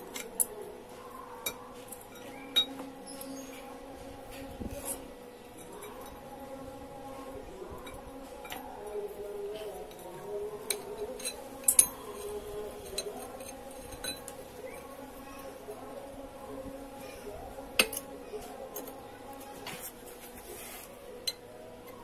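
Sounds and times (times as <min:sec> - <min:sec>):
steel parts clinking: 0:10.6 - 0:15.0.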